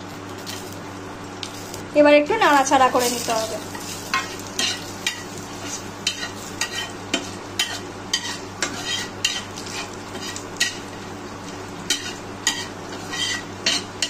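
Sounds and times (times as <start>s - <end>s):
spices sizzling in hot oil: 0.0s - 14.0s
metal spatula scraping pan: 3.7s - 10.8s, 11.9s - 13.9s.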